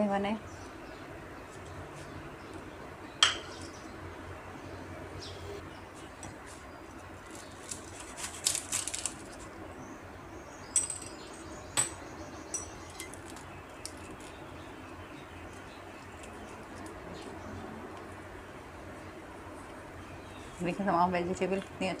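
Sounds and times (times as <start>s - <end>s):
knife crunching through spring roll: 7.2s - 9.4s.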